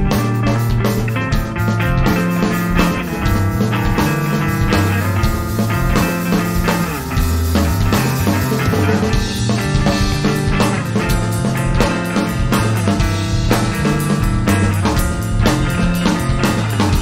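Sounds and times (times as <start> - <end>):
bass guitar: 0.0 - 17.0
drum kit: 0.0 - 17.0
electric guitars: 0.0 - 17.0.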